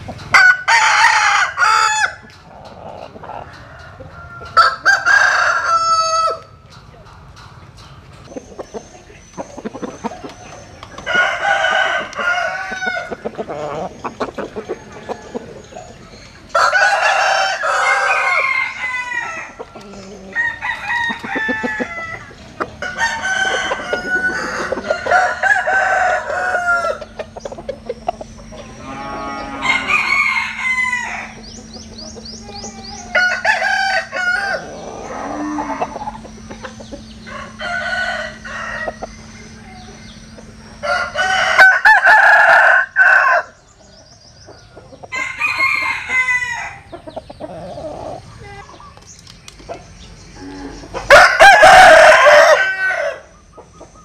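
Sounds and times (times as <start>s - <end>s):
roosters crowing: 0.0s - 49.0s, 49.6s - 54.0s
faint steady hum: 0.0s - 54.0s.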